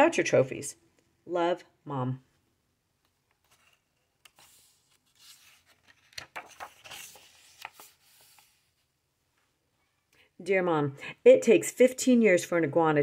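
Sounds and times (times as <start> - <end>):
book page turning: 3.2 - 8.9
hand sliding over paper: 3.4 - 8.9.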